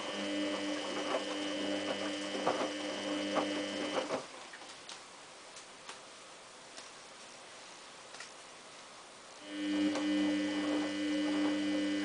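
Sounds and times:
washing machine motor whine: 0.0s - 4.4s, 9.4s - 12.0s.

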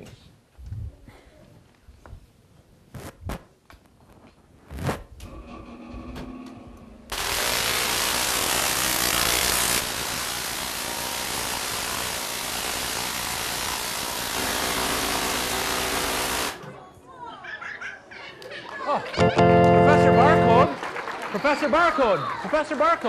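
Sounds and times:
tesla coil sparks: 7.1s - 16.6s.

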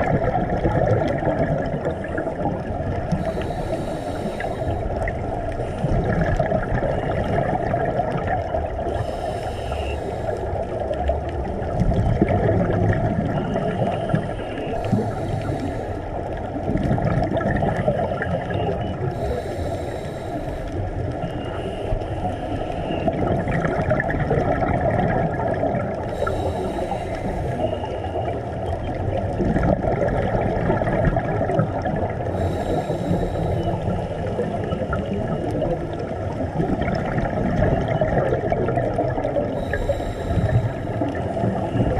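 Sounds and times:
underwater wash of noise: 0.0s - 41.9s
regulator breathing hiss: 3.2s - 5.0s, 8.8s - 10.5s, 13.8s - 16.2s, 19.1s - 23.0s, 26.1s - 28.2s, 32.3s - 34.3s, 39.6s - 41.9s.

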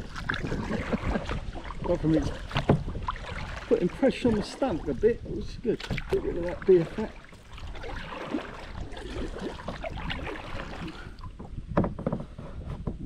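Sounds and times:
kayak paddle splashing: 0.0s - 11.8s
wind on microphone: 0.0s - 13.0s.

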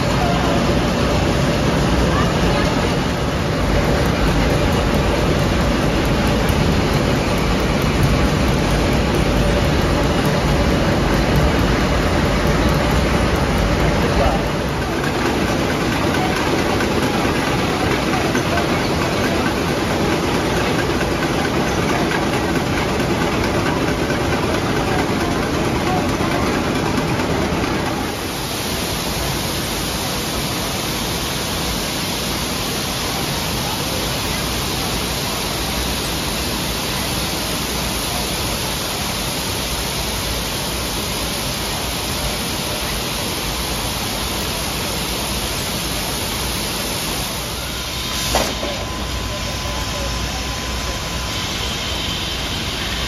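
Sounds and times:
spinning machinery din: 0.0s - 53.0s
sharp clack: 48.3s - 48.8s.

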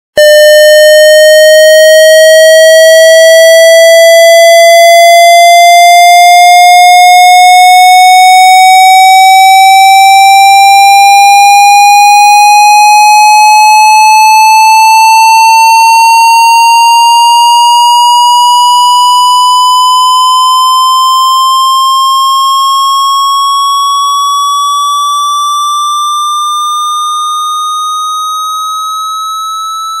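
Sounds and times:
cartoon rising whistle tone: 0.2s - 21.4s.

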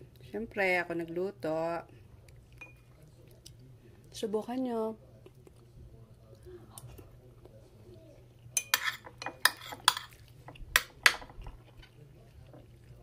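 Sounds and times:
metal spoon clinking on a plate: 2.6s - 2.9s, 8.6s - 11.4s.

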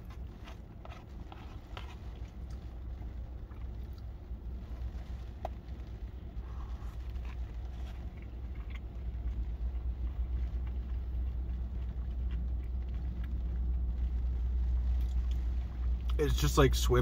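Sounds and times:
faint chewing clicks: 6.6s - 14.0s.

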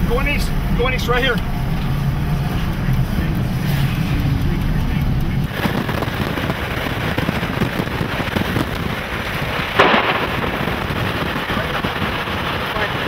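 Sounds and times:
heavy rain: 0.0s - 13.0s
loud thunder crack: 5.5s - 13.0s.

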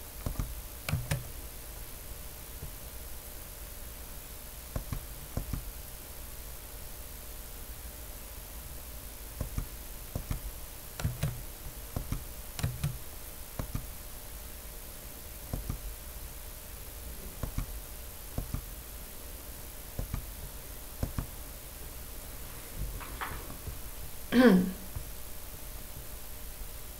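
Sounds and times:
faint hiss and hum: 0.0s - 26.9s
computer mouse clicks: 0.2s - 1.3s, 4.7s - 5.7s, 9.4s - 13.0s, 13.6s - 14.0s, 15.5s - 15.9s, 17.4s - 17.8s, 18.4s - 18.7s, 20.0s - 21.4s.

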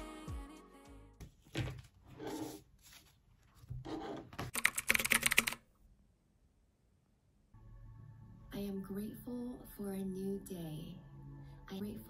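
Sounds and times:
book rubbing and sliding on desk: 1.4s - 4.4s
laptop keyboard typing: 4.5s - 5.7s.

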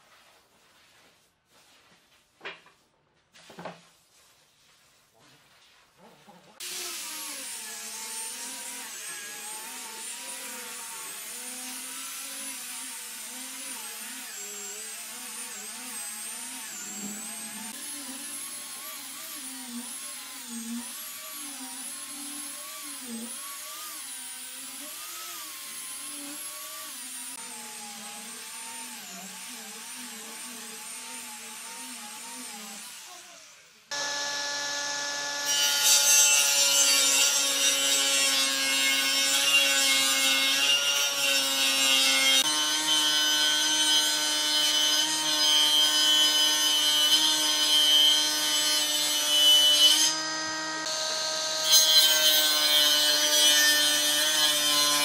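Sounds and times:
angle grinder sanding wood: 4.0s - 55.0s
saw ripping wooden plank: 33.9s - 55.0s
table saw humming: 33.9s - 55.0s.

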